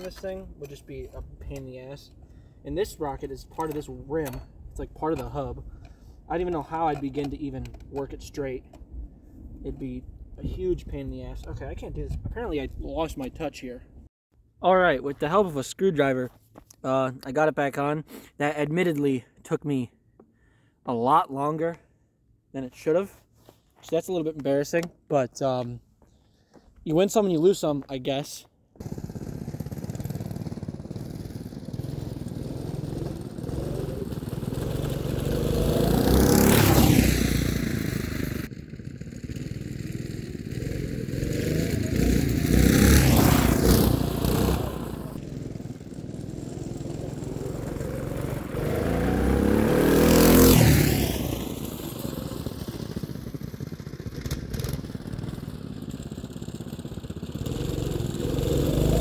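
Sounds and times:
go-kart engines passing by: 28.8s - 59.0s.

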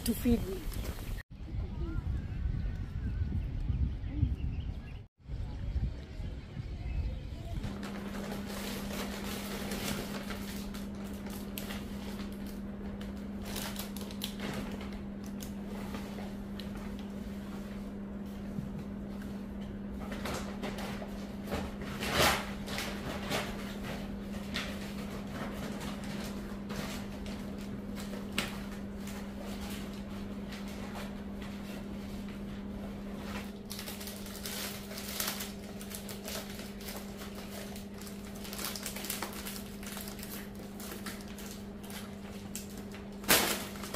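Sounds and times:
steady low hum: 0.0s - 43.9s
wrapping paper crinkling: 7.6s - 17.1s, 33.2s - 43.9s
plastic bag rustling: 7.6s - 43.9s.

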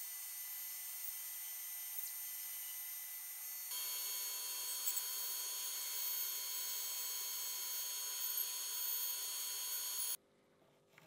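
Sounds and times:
band saw cutting wood: 3.7s - 10.2s.

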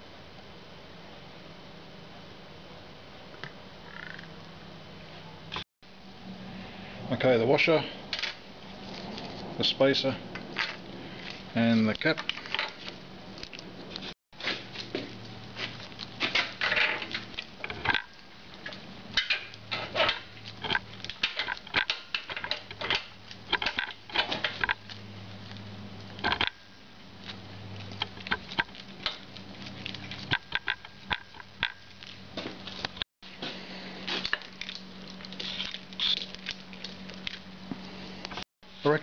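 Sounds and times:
clicks and scrapes of metal hardware: 26.2s - 26.6s.

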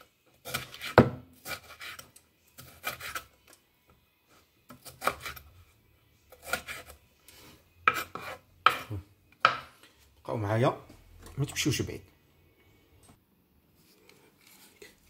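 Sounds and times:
knife chopping on wooden board: 7.8s - 9.7s.

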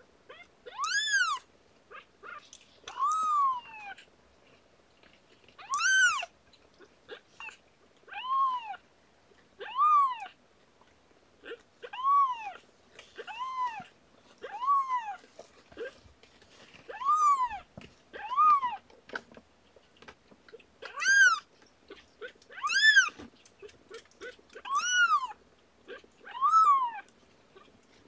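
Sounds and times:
kitten mewing: 0.3s - 4.1s, 5.6s - 6.3s, 9.6s - 10.4s, 11.4s - 15.2s, 16.9s - 18.8s, 20.8s - 27.1s.

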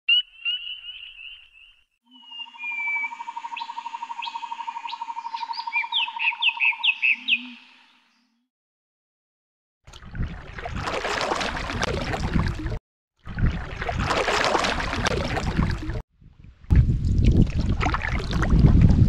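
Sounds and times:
rapid pulsing bird call: 0.1s - 8.0s
high bird trill: 0.1s - 8.1s.

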